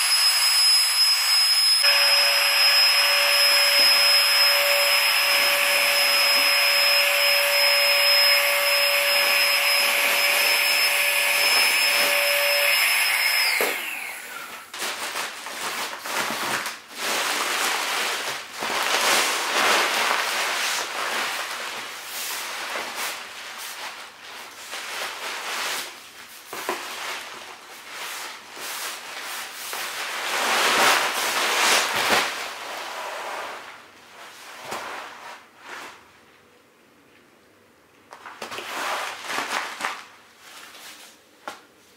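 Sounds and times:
electric air pump whining: 0.0s - 14.7s
sleeping pad crinkling and rustling: 14.7s - 36.1s.

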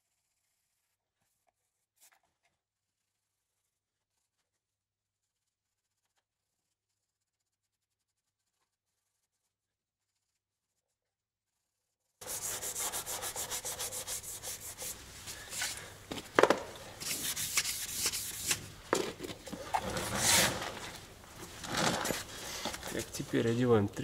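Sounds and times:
hand sanding with sandpaper: 12.2s - 15.9s, 16.9s - 18.8s, 19.6s - 20.9s.

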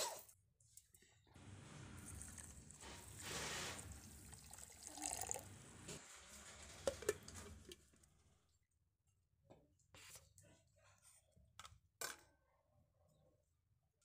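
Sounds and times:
water pouring and splashing: 1.8s - 7.7s.

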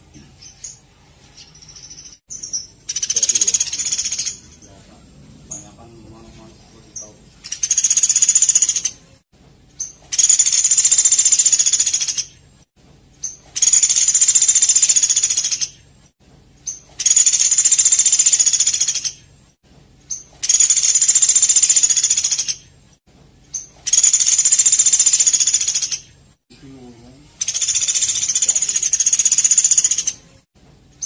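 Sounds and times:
songbird trilling: 1.8s - 4.9s, 5.5s - 9.0s, 9.8s - 12.3s, 13.2s - 15.8s, 16.7s - 19.2s, 20.1s - 22.6s, 23.5s - 26.0s, 27.3s - 30.2s.

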